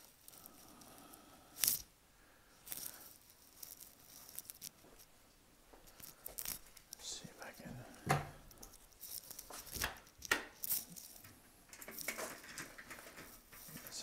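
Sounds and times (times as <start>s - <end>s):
phone rustling and scraping: 2.6s - 5.1s, 5.8s - 14.0s.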